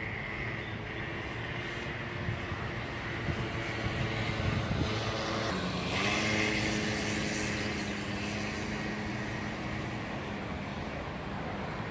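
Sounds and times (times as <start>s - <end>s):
vehicle engine hum: 0.0s - 11.9s.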